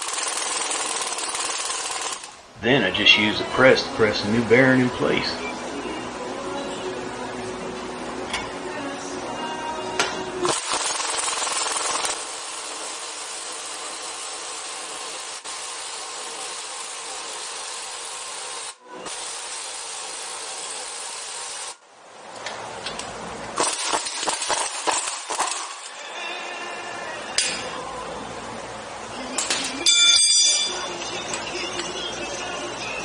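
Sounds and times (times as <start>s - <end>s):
metal tool clinking and rattling: 29.4s - 32.0s.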